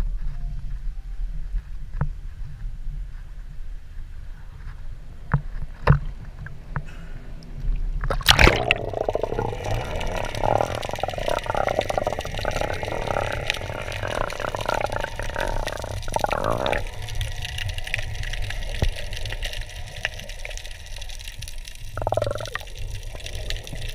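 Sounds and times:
muffled underwater rushing: 0:08.0 - 0:23.9
water lapping and splashing: 0:08.0 - 0:23.9
loud splash: 0:08.1 - 0:10.6.

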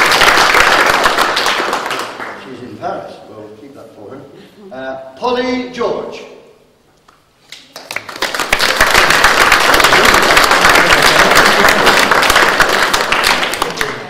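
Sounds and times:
audience applauding: 0:00.0 - 0:02.5, 0:07.6 - 0:14.0.

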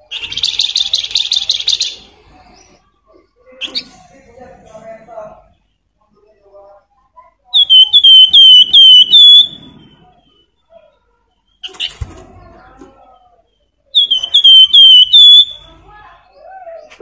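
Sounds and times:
soft bird chirps: 0:05.4 - 0:17.0
bird singing whistled phrase: 0:07.6 - 0:10.4, 0:14.0 - 0:15.7.

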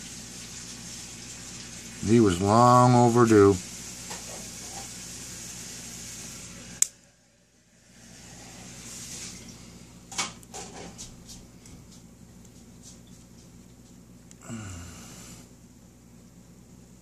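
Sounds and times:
steady hiss: 0:00.0 - 0:12.0.

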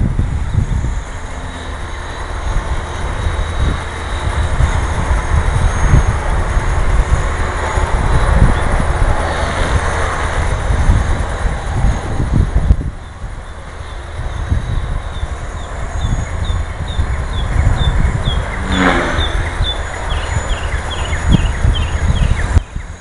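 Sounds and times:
model airplane whine: 0:00.0 - 0:23.0
wind buffeting microphone: 0:00.0 - 0:23.0.

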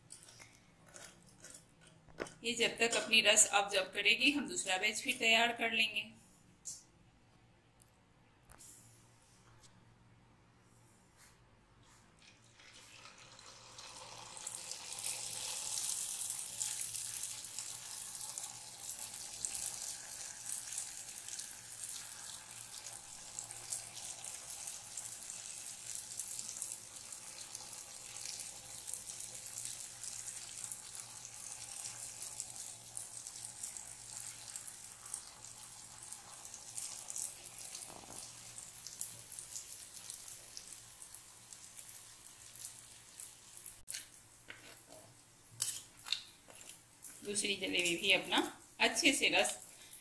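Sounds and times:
batter sizzling in hot oil: 0:12.4 - 0:44.9.

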